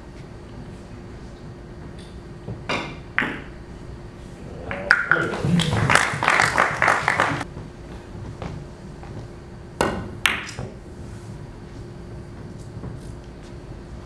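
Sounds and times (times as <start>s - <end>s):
cue striking ball: 2.7s - 3.6s, 4.7s - 5.9s, 9.8s - 10.8s
billiard balls clicking: 4.7s - 5.8s.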